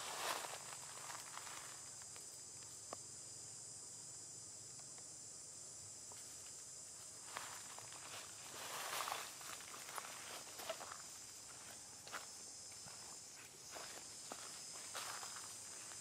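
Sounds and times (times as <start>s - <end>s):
rustling of dry leaf litter: 0.0s - 2.0s
high-pitched insect drone: 0.0s - 16.0s.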